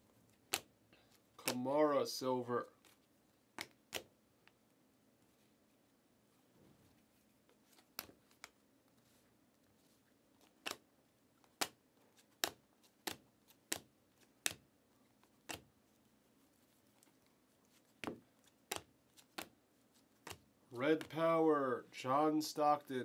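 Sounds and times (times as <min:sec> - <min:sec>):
trading cards clicking: 0:01.4 - 0:01.6, 0:15.4 - 0:15.6.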